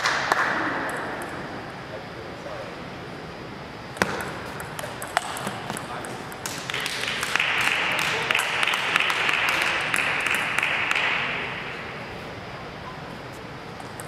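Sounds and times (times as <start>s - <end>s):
small audience clapping: 0.0s - 0.6s, 6.4s - 11.5s.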